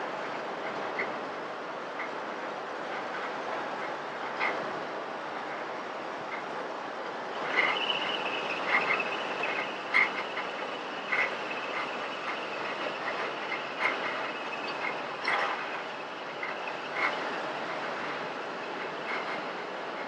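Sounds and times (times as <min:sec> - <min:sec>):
car road and engine noise: 0:00.1 - 0:20.0
high thin whine: 0:07.3 - 0:19.7.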